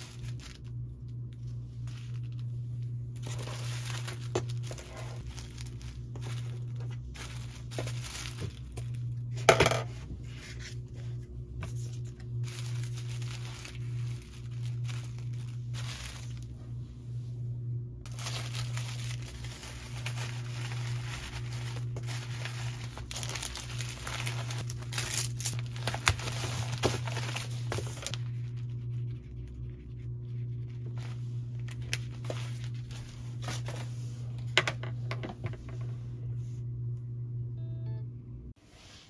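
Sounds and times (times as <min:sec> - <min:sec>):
plastic mailer crinkling: 0:00.0 - 0:10.9, 0:11.7 - 0:16.6, 0:18.1 - 0:29.1, 0:30.6 - 0:33.9
steady low hum: 0:00.0 - 0:39.0.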